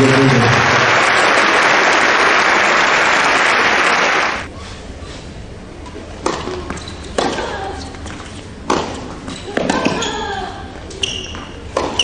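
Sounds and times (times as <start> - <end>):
crowd applauding: 0.0 - 4.5
low hall background: 0.0 - 12.0.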